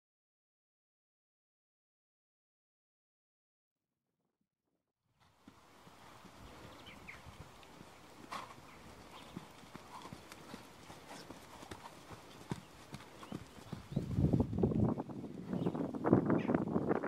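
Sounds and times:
horse hoofbeats on sand: 5.2 - 16.5.

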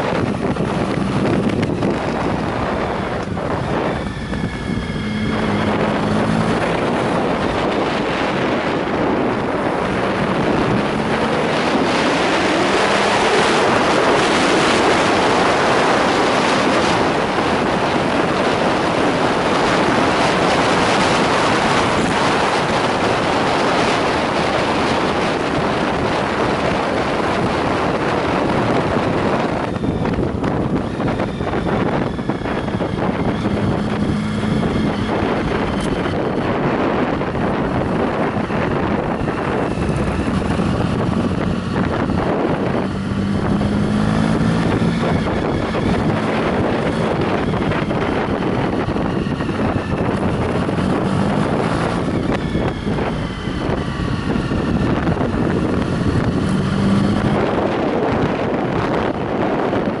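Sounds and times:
motorcycle engine running: 0.0 - 60.0
wind buffeting microphone: 0.0 - 60.0.

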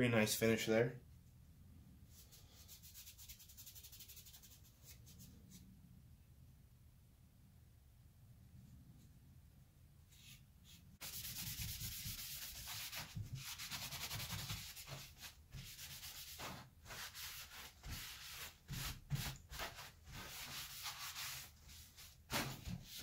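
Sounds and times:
cloth rag rubbing on wood: 10.1 - 23.0.

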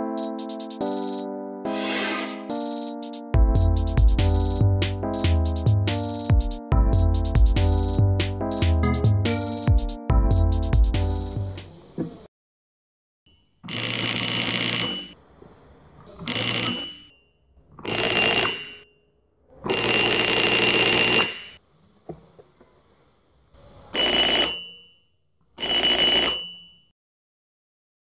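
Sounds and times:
electric bell ringing: 13.7 - 15.2, 16.3 - 17.2, 17.9 - 18.9, 19.7 - 21.6, 24.0 - 25.0, 25.6 - 26.9.

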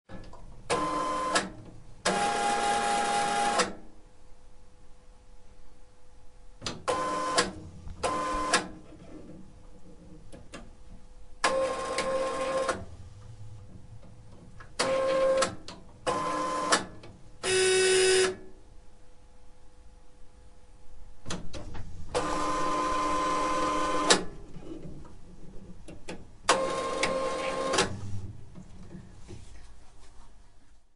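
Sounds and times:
faint steady hum: 0.1 - 30.9
printer motor whirring: 0.7 - 3.8, 6.8 - 8.8, 11.4 - 13.0, 22.1 - 24.4, 26.5 - 28.4.

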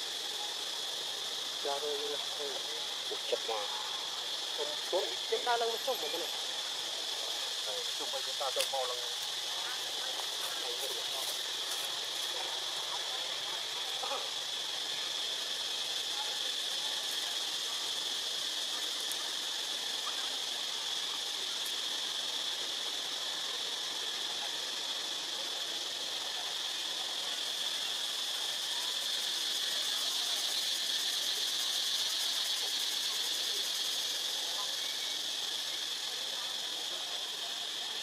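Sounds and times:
constant hiss: 0.0 - 38.0
high-pitched insect drone: 0.0 - 38.0.

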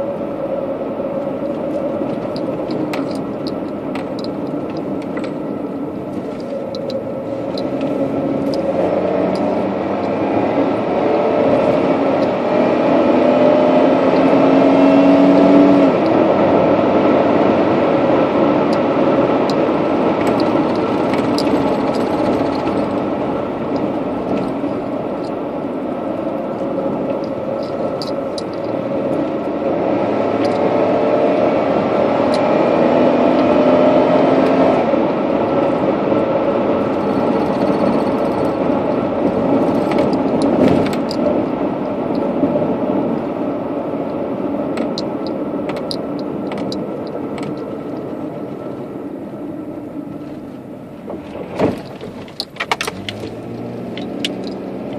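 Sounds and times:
car road and engine noise: 0.0 - 54.9
small clicks and rattles: 1.7 - 5.4, 20.2 - 23.1, 26.6 - 28.8, 36.8 - 42.3, 44.8 - 48.1, 51.2 - 54.9.

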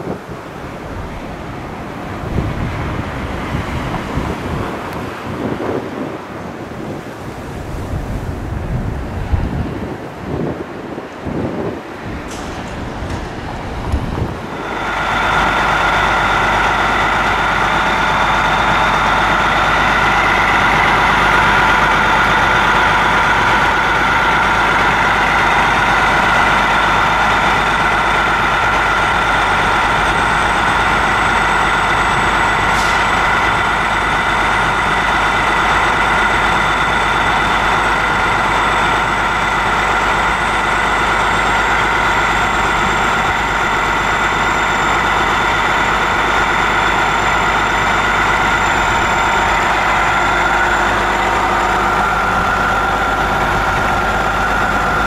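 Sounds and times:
high engine whine: 0.0 - 55.0
diesel engine idling: 12.0 - 55.0.

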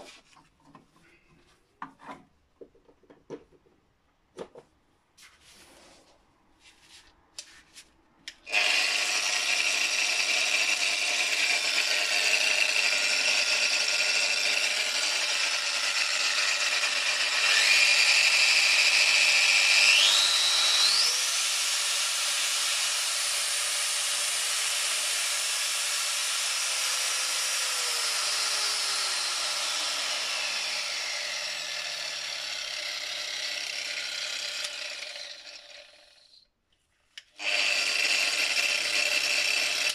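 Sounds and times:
angle grinder whining: 8.3 - 36.4, 37.2 - 39.9.

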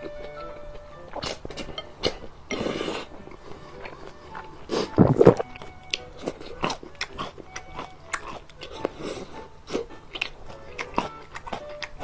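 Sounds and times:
chewing: 0.0 - 12.0
man slurping noodles: 4.7 - 5.5.

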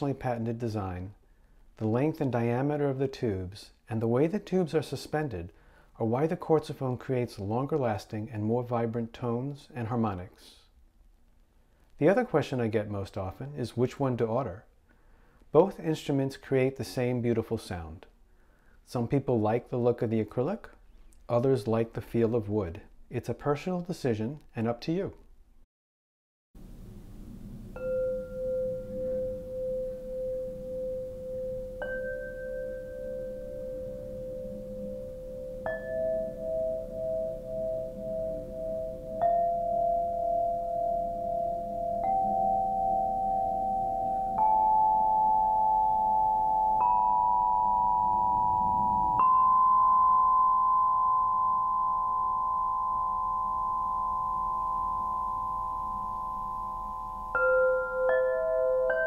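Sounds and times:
crystal tubes struck ringing: 27.6 - 59.0.

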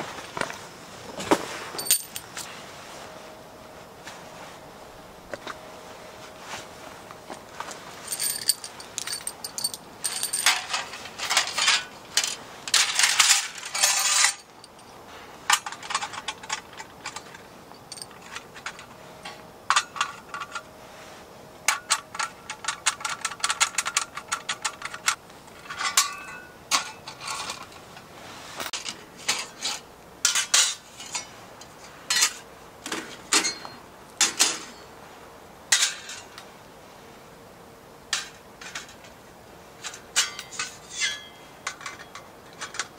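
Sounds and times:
small metal gear clinking: 1.8 - 2.5, 8.0 - 18.9.

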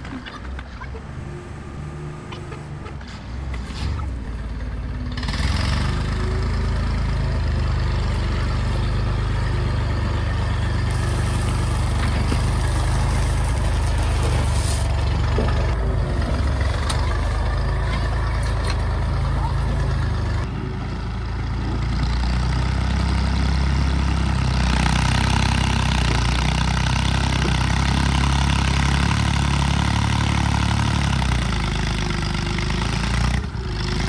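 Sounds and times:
backhoe engine running: 0.0 - 34.0
dirt spilling from bucket: 10.9 - 15.0.

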